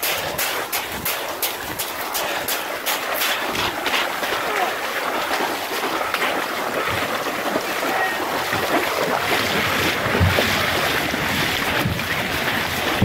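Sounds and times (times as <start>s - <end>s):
wind noise on microphone: 0.0s - 2.6s, 8.4s - 13.0s
feet splashing through water: 0.0s - 13.0s.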